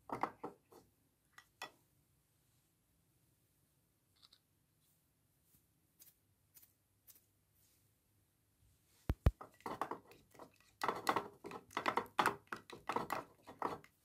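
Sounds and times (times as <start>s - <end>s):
spatula stirring thick soap: 9.4s - 14.0s.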